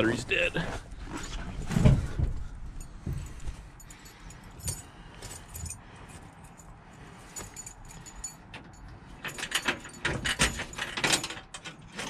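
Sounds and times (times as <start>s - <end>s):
car keys jangling in ignition: 2.8s - 12.0s.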